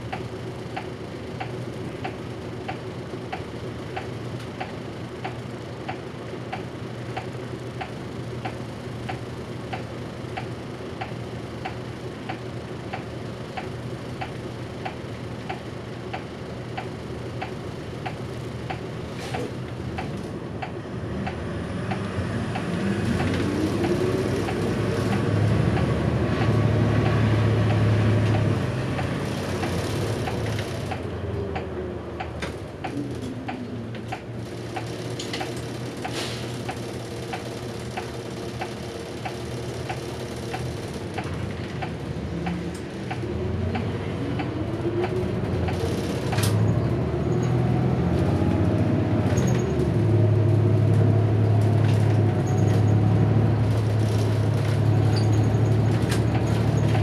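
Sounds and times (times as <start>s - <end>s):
bus engine revving with whine: 18.1s - 36.8s, 39.6s - 57.0s.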